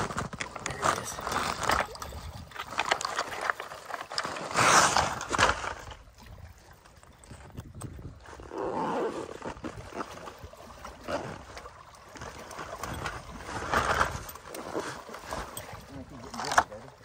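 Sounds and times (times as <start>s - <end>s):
wind rumbling on microphone: 0.0s - 3.0s, 4.9s - 10.6s
waves lapping against rocks: 0.0s - 17.0s.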